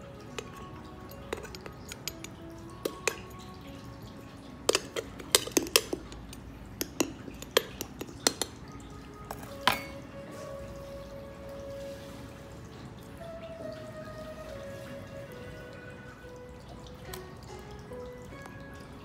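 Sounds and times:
metal spoon clinking on glass: 0.3s - 3.5s, 4.7s - 8.6s, 9.3s - 10.1s.

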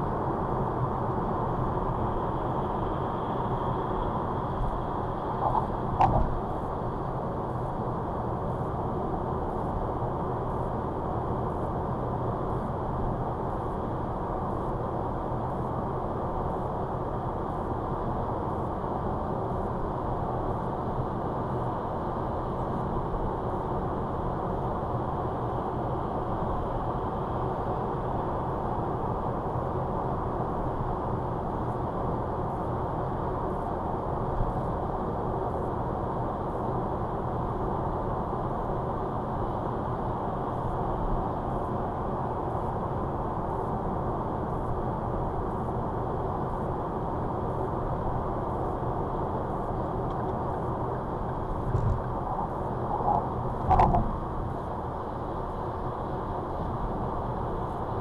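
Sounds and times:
car road and tyre noise: 0.0s - 58.0s
car engine hum: 47.4s - 57.9s.

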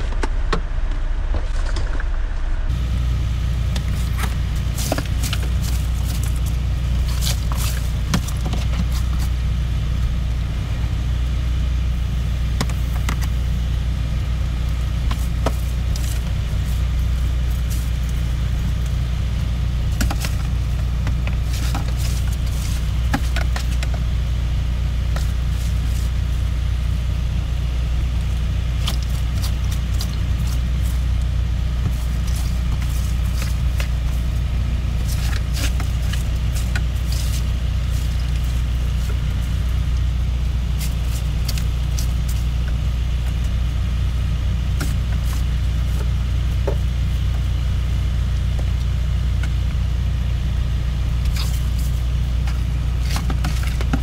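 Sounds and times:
engine idling: 0.0s - 54.0s
trash rustling and clattering: 3.7s - 9.4s, 19.8s - 24.1s, 28.8s - 39.8s.

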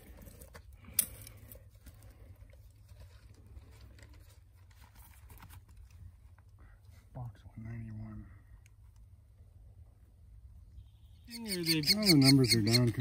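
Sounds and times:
rustling and handling noise: 0.0s - 7.1s.

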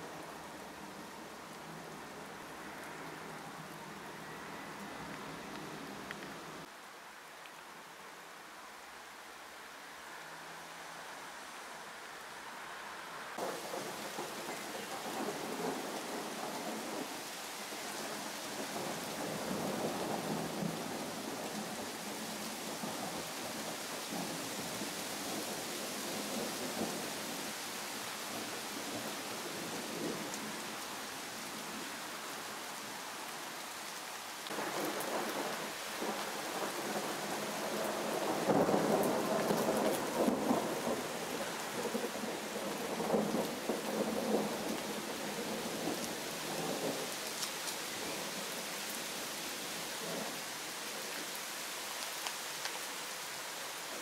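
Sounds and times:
steady rain: 0.0s - 54.0s
thunder rumbling: 13.4s - 17.1s, 34.5s - 47.0s.

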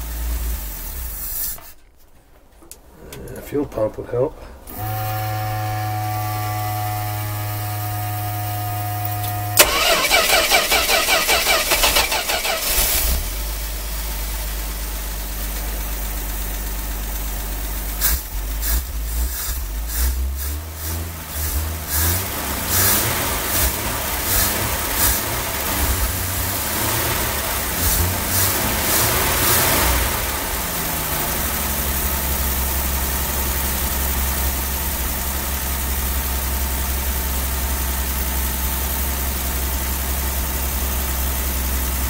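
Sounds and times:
engine cranking and idling: 4.6s - 42.0s
engine revving: 4.7s - 14.0s, 18.0s - 33.3s.

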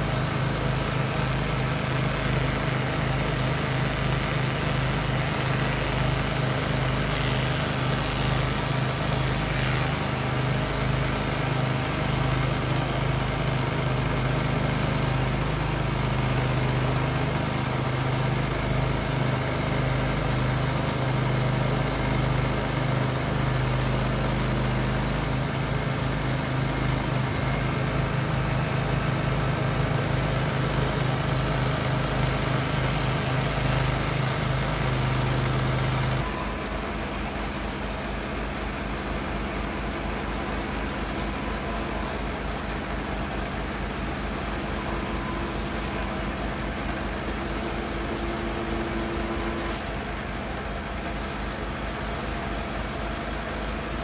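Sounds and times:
stump grinder grinding: 0.0s - 54.0s.

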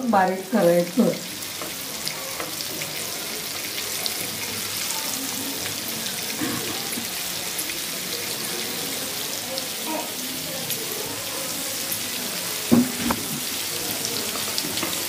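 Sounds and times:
fish sizzling in hot oil: 0.0s - 15.0s
oil popping and crackling: 1.1s - 15.0s.

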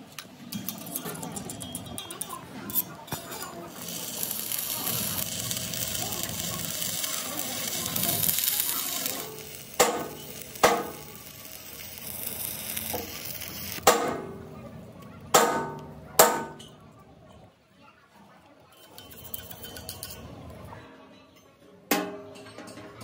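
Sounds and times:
arc welding crackling hiss: 2.8s - 14.0s.

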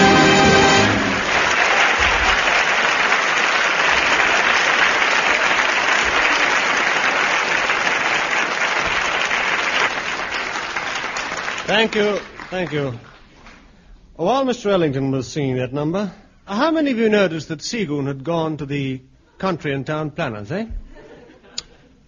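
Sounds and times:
band playing held chord: 0.0s - 1.4s
audience applauding: 0.0s - 13.8s.

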